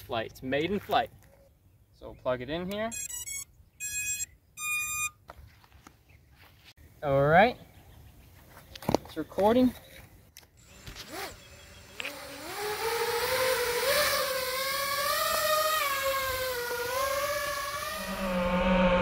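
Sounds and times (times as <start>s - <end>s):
drone propellers whining: 10.6s - 19.0s.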